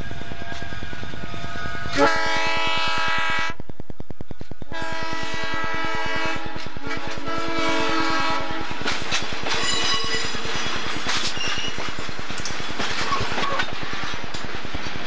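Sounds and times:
locomotive air horn blasts: 0:01.9 - 0:03.6, 0:04.7 - 0:08.8.

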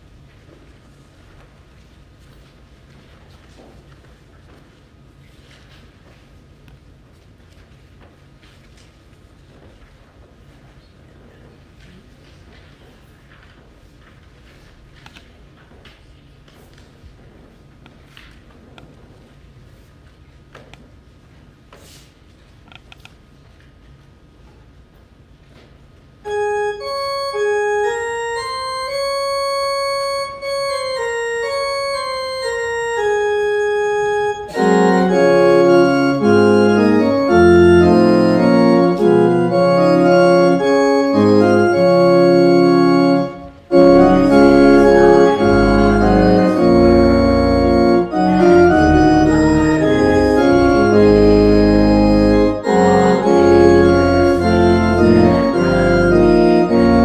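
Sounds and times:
church organ playing a hymn: 0:26.3 - 0:57.0.

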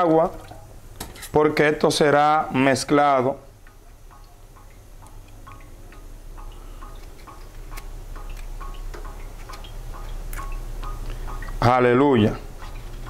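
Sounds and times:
low steady hum: 0:00.0 - 0:13.0
small ticks and plinks: 0:03.4 - 0:13.0.

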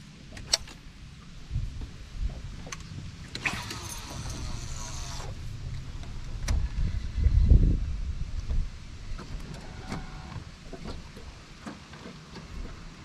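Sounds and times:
wind buffeting microphone: 0:01.4 - 0:11.5.

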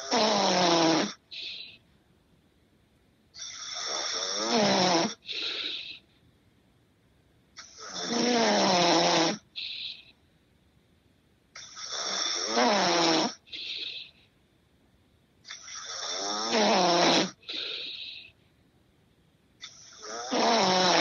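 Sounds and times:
man snoring: 0:00.0 - 0:01.8, 0:03.4 - 0:06.0, 0:07.6 - 0:10.0, 0:11.6 - 0:14.2, 0:15.5 - 0:18.3, 0:19.7 - 0:21.0.

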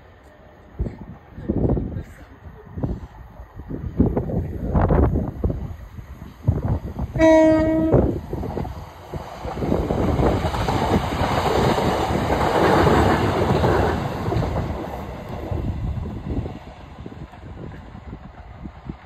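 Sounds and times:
train wheels on track: 0:00.0 - 0:19.0
train horn blast: 0:07.1 - 0:08.2.

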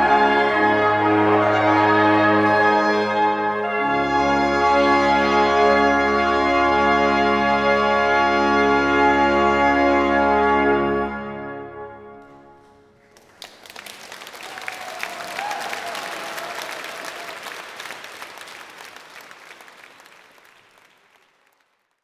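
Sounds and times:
brass ensemble and organ chord: 0:00.0 - 0:13.4
audience applauding: 0:12.6 - 0:22.0.

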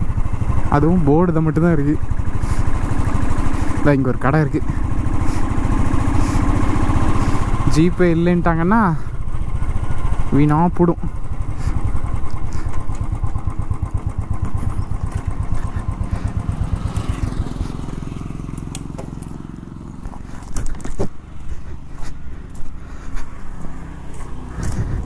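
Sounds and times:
motorcycle engine idling: 0:00.0 - 0:25.0
sharp clicks and knocks: 0:18.6 - 0:19.4.

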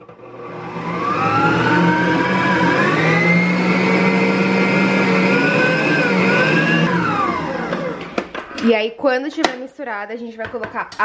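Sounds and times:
stand mixer motor whine: 0:00.0 - 0:08.5.

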